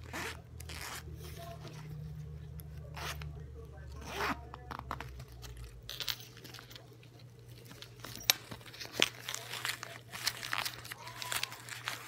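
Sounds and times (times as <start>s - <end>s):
fabric rustling and crinkling: 3.9s - 12.0s.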